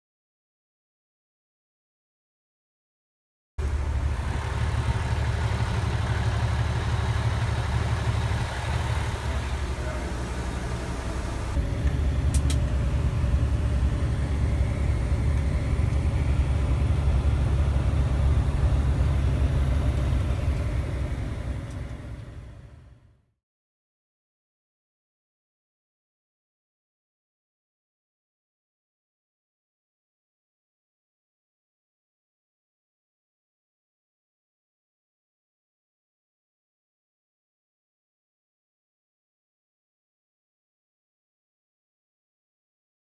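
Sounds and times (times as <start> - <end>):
fire engine rumble from inside cab: 3.6 - 23.3.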